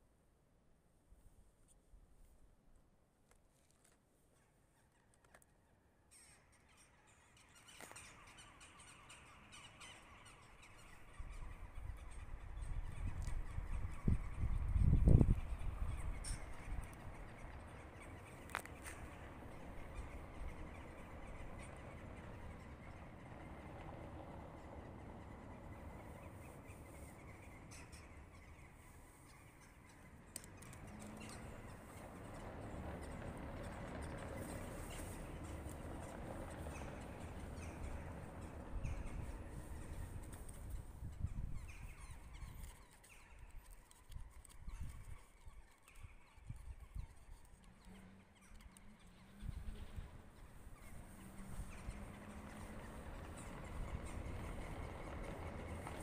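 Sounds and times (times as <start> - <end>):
faint clicks: 30.3 - 37.5
wheels rumbling on paving stones: 30.5 - 41.0, 49.8 - 56.0.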